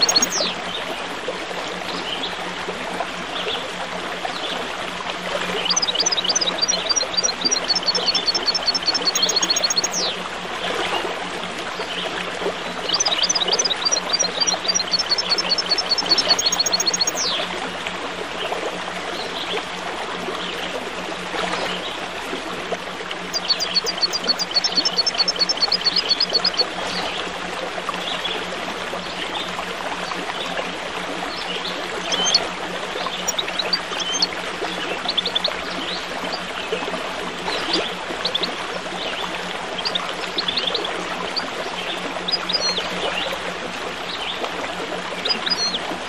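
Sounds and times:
bird chirping: 0.0s - 0.5s, 5.6s - 10.1s, 12.9s - 17.4s, 23.3s - 26.6s, 32.1s - 32.4s, 33.1s - 34.3s
water trickling: 0.0s - 46.0s.

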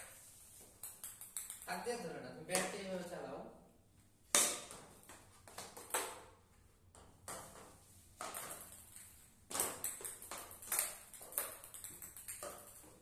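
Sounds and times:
ball bouncing on tiled floor: 0.0s - 1.8s, 4.2s - 13.0s
plastic paddle hitting ball: 2.5s - 2.9s, 4.3s - 13.0s.

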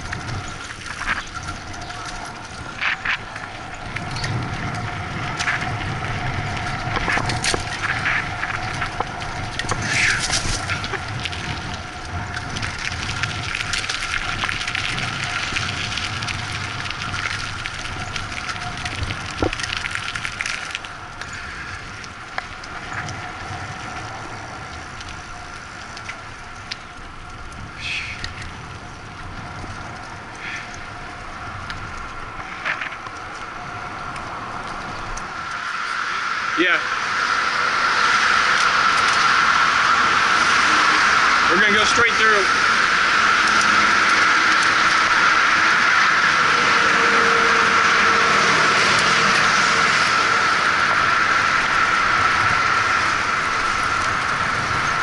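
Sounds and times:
camera rattling: 0.0s - 21.3s
wheels knocking over bumps: 0.0s - 35.3s
bicycle rolling on pavement: 0.0s - 55.0s.

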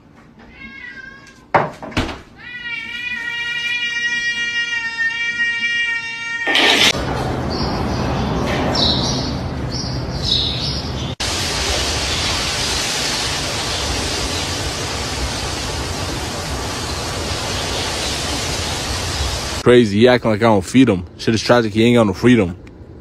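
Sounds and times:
steady static hiss: 11.2s - 22.1s.

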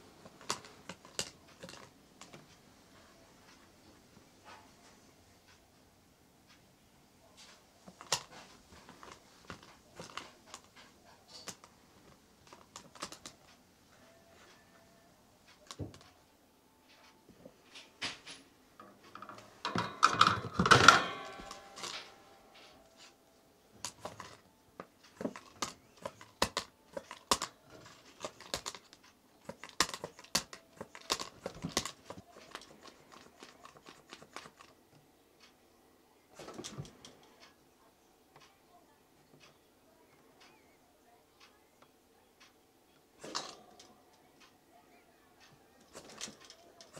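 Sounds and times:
plastic toy rattling on wire cage: 0.3s - 2.4s, 17.7s - 22.1s, 25.1s - 34.8s, 43.2s - 43.9s, 45.8s - 46.9s
clattering and rustling: 7.4s - 13.6s, 16.9s - 23.2s, 45.8s - 46.9s.

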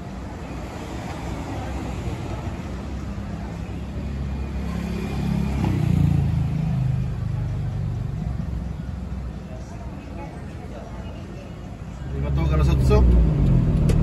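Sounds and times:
traffic engine rumble: 0.0s - 14.0s
vehicle passing close: 12.1s - 14.0s.

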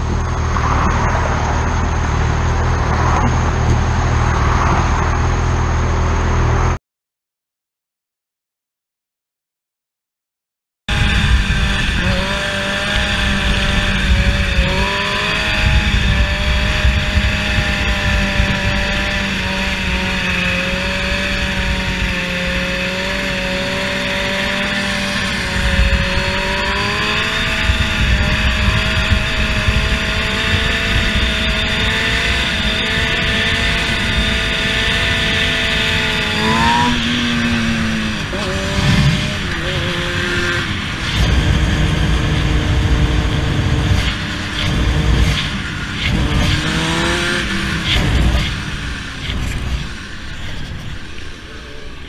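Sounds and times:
motorcycle engine running: 10.9s - 52.0s
wind rumble on microphone: 10.9s - 52.0s.

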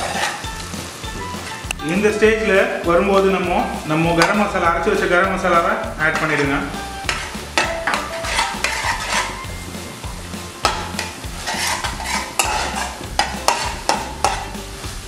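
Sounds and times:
spatula scraping a pan: 0.0s - 0.7s, 6.1s - 9.6s, 10.6s - 14.8s
onions sizzling in a pan: 0.0s - 15.0s.

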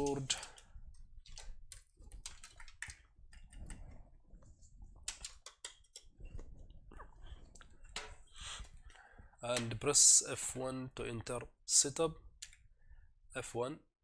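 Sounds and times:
cable clicks and rustling: 0.0s - 10.0s.

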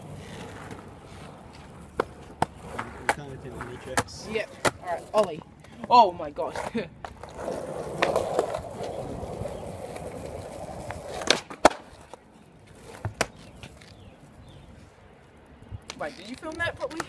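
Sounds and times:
skateboard wheels rolling on concrete: 0.0s - 17.0s
skateboard ollie clacks: 6.6s - 14.0s.

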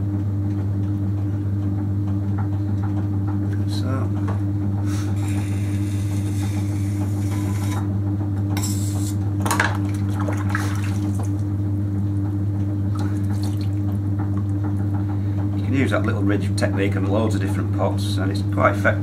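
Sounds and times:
potter's wheel humming: 0.0s - 19.0s
water splashing and dripping: 9.9s - 11.4s, 12.9s - 14.0s.

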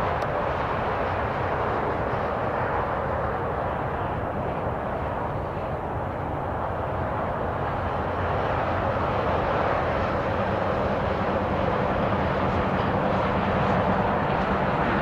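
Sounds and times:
jet engines droning: 0.0s - 15.0s.

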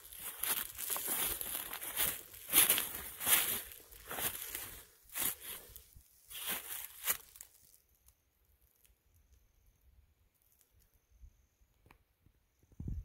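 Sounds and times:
footsteps crunching dry leaves: 0.0s - 7.8s.

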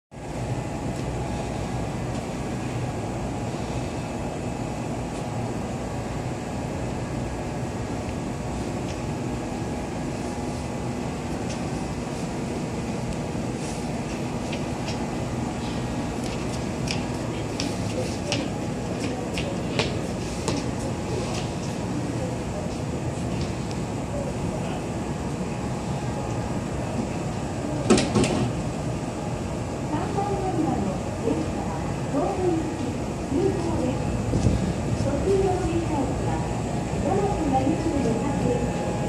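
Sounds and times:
electric train humming: 0.1s - 39.0s
footsteps on platform: 16.2s - 21.6s.

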